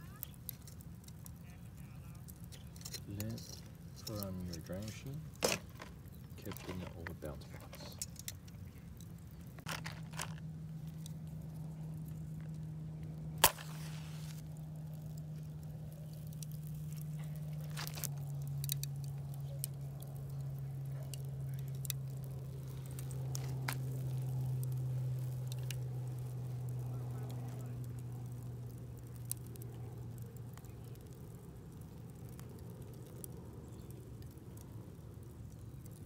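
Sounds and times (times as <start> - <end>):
steady low hum: 0.0 - 36.0
match striking and flaring: 13.4 - 31.4.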